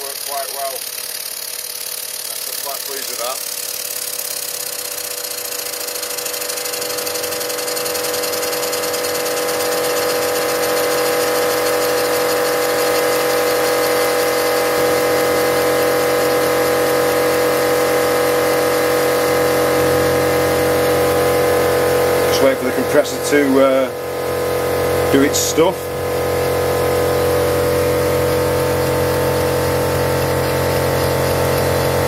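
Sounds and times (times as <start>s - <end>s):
air compressor humming: 0.0s - 32.0s
model steam engine exhaust beats: 0.0s - 32.0s.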